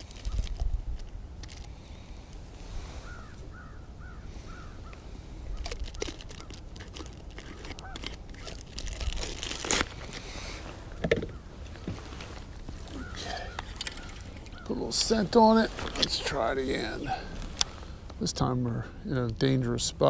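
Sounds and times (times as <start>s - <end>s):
plastic jar clicking and crinkling: 5.6s - 10.2s.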